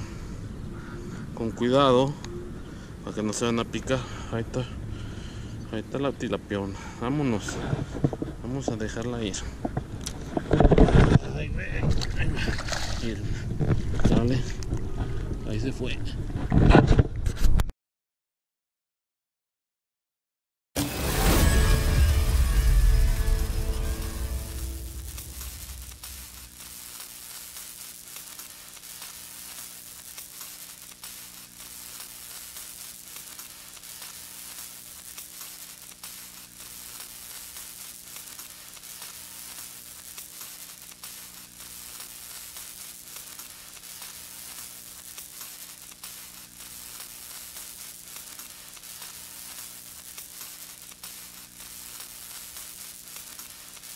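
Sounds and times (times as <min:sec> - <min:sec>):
crackling static: 0:20.8 - 0:53.9
low electrical hum: 0:21.4 - 0:53.9.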